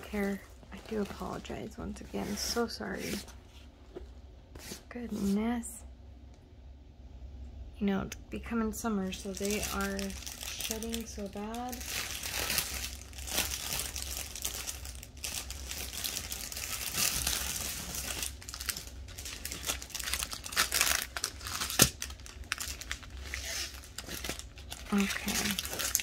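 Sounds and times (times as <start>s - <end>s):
plastic bags crinkling: 0.0s - 2.8s, 9.0s - 26.0s.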